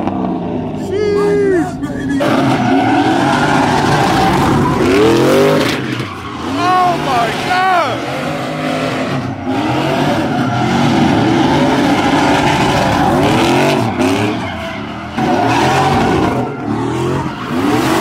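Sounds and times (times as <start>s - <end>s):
truck engines revving hard: 0.0s - 18.0s
tyres squealing and skidding: 0.5s - 18.0s.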